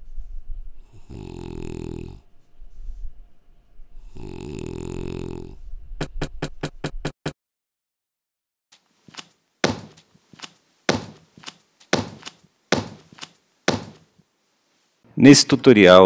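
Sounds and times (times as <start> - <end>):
cartoon snore: 0.9 - 2.2, 4.0 - 5.6
rubber stamp thumping on paper: 9.1 - 14.1.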